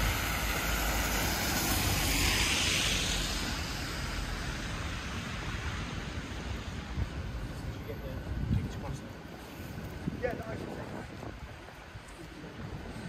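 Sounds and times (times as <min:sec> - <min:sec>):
vehicle passing: 0:00.0 - 0:07.1
low traffic rumble: 0:00.0 - 0:13.0.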